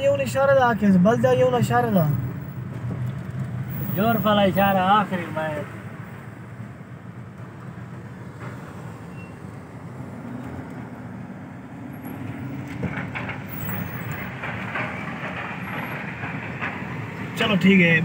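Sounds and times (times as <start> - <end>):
car road noise rumble: 0.0 - 18.0.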